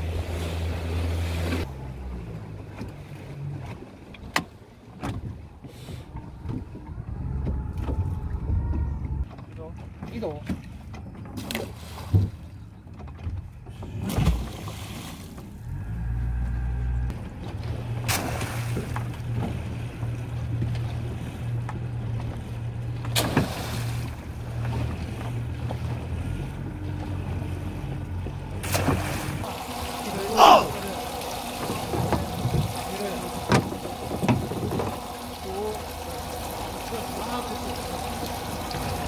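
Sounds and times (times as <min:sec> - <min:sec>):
boat engine running: 0:00.0 - 0:39.0
splash in water: 0:14.0 - 0:15.4, 0:17.8 - 0:19.1, 0:23.1 - 0:24.2, 0:28.6 - 0:33.7.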